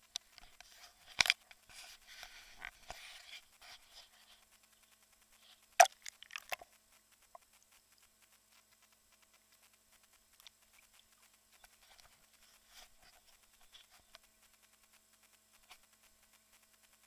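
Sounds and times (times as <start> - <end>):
crackling patter: 0.0 - 17.0
water splashing and lapping: 5.8 - 6.7.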